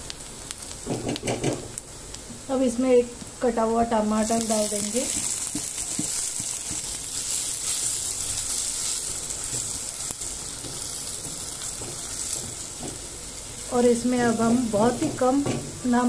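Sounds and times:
vegetables sizzling in hot oil: 0.0s - 16.0s
spatula knocking on pan: 5.1s - 6.9s, 14.9s - 15.7s.

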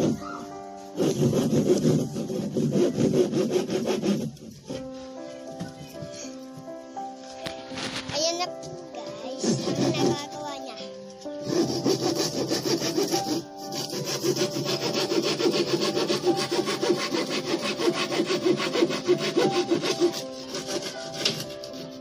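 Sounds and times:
hand saw cutting plywood: 0.0s - 0.3s, 0.9s - 4.9s, 9.4s - 10.4s, 11.4s - 22.0s.

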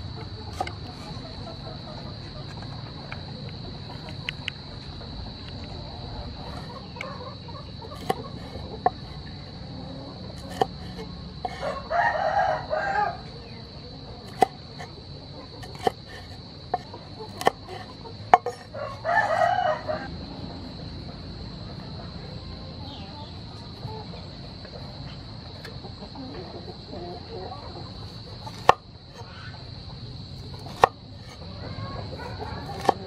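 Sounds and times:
knife chopping on wooden board: 8.0s - 9.0s, 10.4s - 11.6s, 14.3s - 14.9s, 15.6s - 18.7s, 28.4s - 28.8s, 30.6s - 30.9s, 32.7s - 33.0s
rooster crowing: 11.0s - 13.7s, 17.4s - 20.8s, 31.4s - 33.0s.

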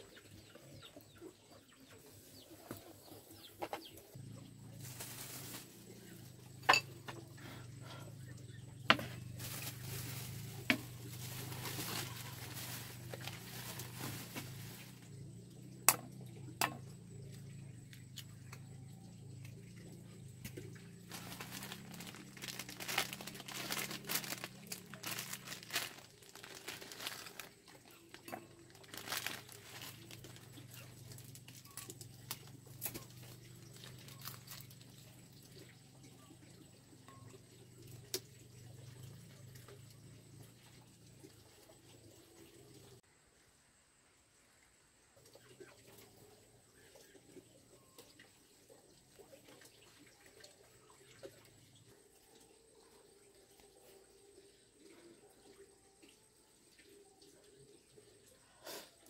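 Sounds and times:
plastic packets crinkling: 4.8s - 5.7s, 9.3s - 15.0s, 21.1s - 34.7s.

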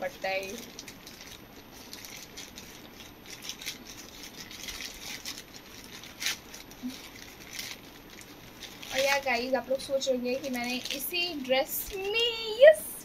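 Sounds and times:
plastic bag tearing open: 0.0s - 12.8s
plastic mailer bag crinkling: 0.0s - 12.9s.

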